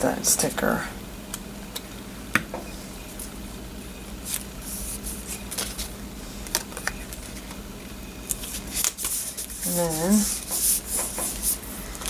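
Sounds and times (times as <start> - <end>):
paper rustling and scraping: 4.2 - 7.4, 8.3 - 12.0.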